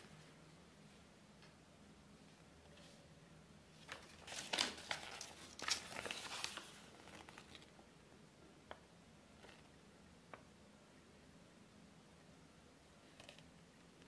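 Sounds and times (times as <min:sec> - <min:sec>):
paper leaflet rustling: 0:03.8 - 0:07.8.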